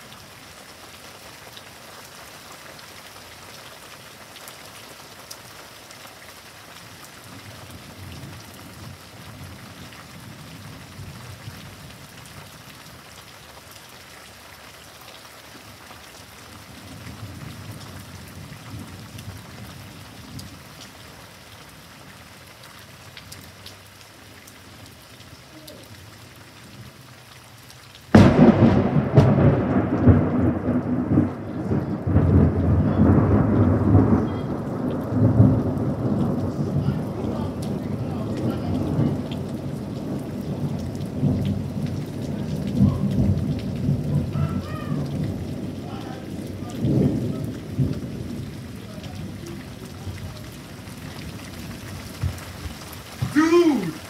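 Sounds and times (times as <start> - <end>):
heavy rain: 0.0 - 54.0
distant thunder rolls: 28.1 - 53.4
loud close thunder clap: 28.2 - 46.0, 46.6 - 48.5.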